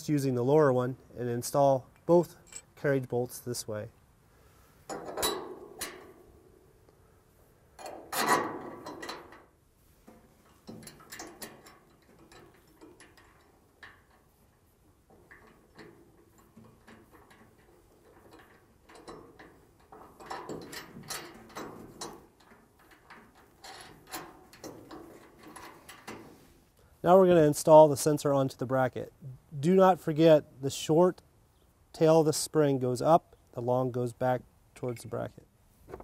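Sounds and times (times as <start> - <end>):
metal bracket clicks and knocks: 1.9 - 3.2, 4.9 - 6.2, 7.8 - 9.5, 10.1 - 26.4.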